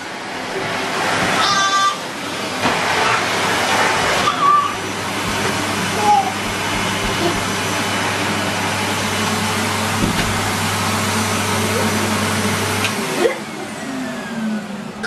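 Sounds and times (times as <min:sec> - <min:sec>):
vacuum cleaner running: 0:00.0 - 0:15.0
vacuum motor winding down: 0:04.8 - 0:15.0.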